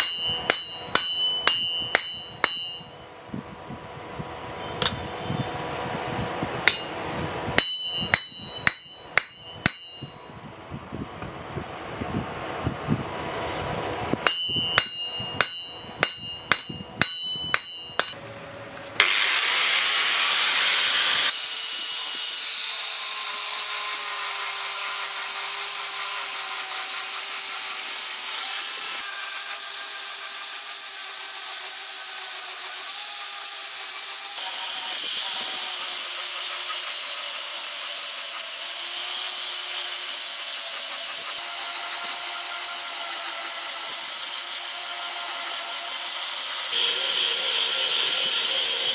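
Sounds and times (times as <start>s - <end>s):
steel struck ringing like a bell: 0.0s - 3.3s, 4.8s - 5.3s, 7.6s - 10.6s, 14.3s - 18.2s
power tool hissing on metal: 19.0s - 48.9s.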